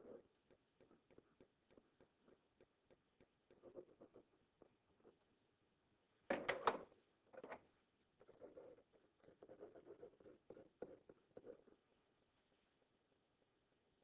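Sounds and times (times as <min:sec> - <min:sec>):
stylus scratching and tapping: 0:00.0 - 0:05.2, 0:06.5 - 0:11.9.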